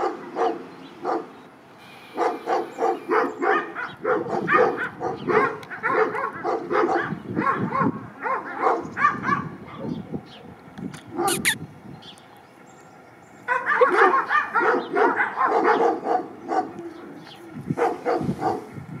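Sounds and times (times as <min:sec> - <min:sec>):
dog barking and yipping: 0:00.0 - 0:01.3, 0:02.2 - 0:09.6, 0:11.1 - 0:11.6, 0:13.5 - 0:16.7, 0:17.8 - 0:18.7.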